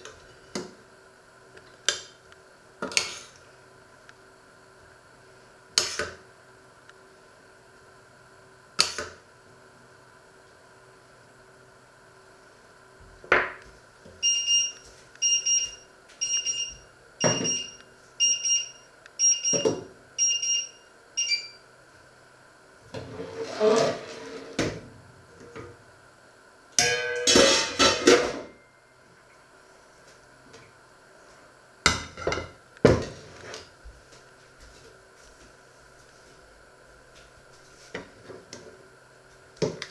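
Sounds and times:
kitchen utensils clattering: 26.8 - 28.5.

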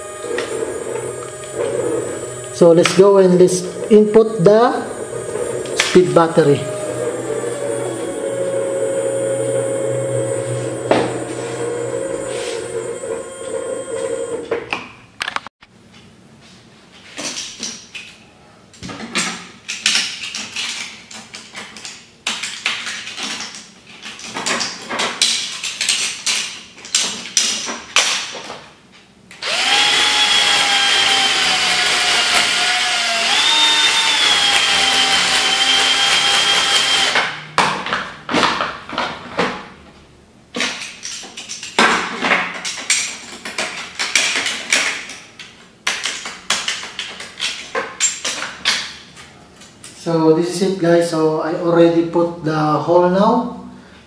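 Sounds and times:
cordless drill whining: 0.0 - 14.6, 29.4 - 37.2.

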